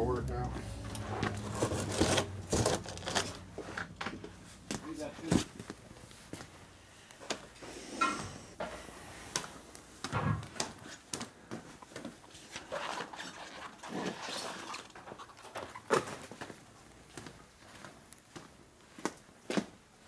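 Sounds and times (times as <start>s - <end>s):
knocks and clatter: 10.0s - 10.8s.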